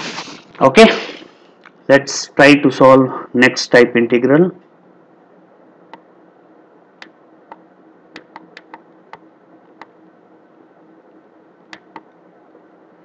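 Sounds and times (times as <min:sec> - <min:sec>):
faint steady hum: 0:00.0 - 0:13.0
mouse and keyboard clicks: 0:08.2 - 0:09.2.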